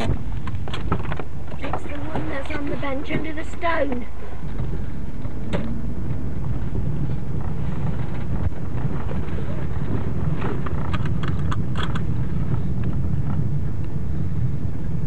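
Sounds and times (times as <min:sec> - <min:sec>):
clicks and crackles: 0:00.0 - 0:02.6, 0:07.3 - 0:14.0
car engine and tyres rumbling: 0:00.0 - 0:15.0.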